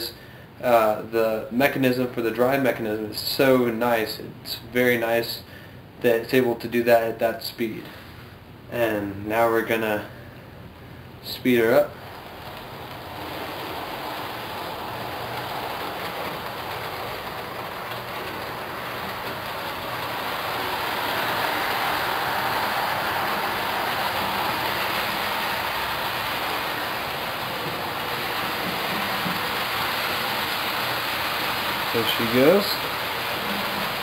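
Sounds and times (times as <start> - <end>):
model train wheels rolling on rails: 11.2 - 34.0.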